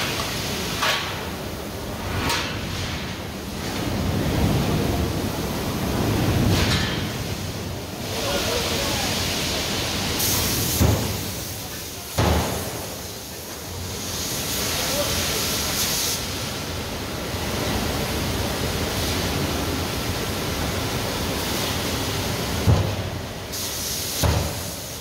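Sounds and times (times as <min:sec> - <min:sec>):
forge hissing: 0:06.0 - 0:25.0.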